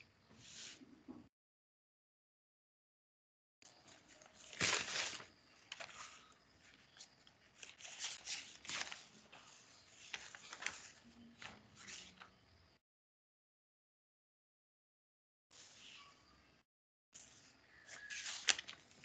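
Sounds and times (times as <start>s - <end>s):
faint rustling and handling noise: 3.7s - 12.5s, 17.2s - 19.0s.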